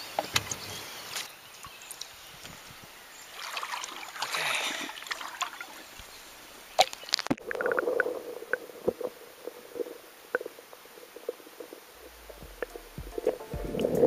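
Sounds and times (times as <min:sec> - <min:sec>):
creek water splashing and trickling: 0:00.0 - 0:14.0
knocks and clicks: 0:12.0 - 0:14.0.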